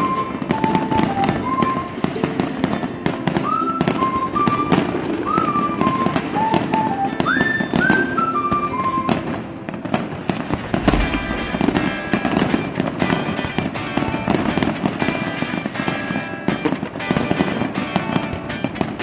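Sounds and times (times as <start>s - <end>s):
background music: 0.0s - 9.6s
fireworks bursting and crackling: 0.0s - 19.0s
deep firework boom: 10.4s - 13.3s.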